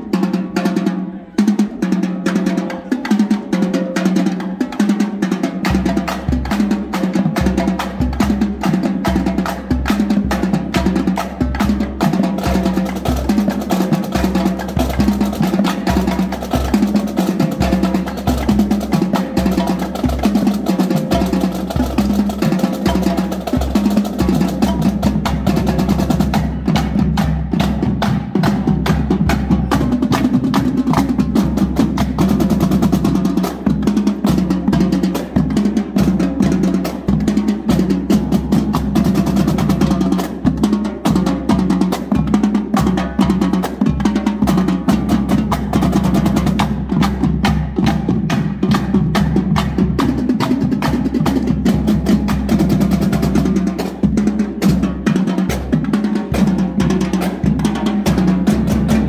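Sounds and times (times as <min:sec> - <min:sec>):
snare drums fast rhythm: 0:00.0 - 0:59.0
marching bass drums: 0:01.5 - 0:59.0.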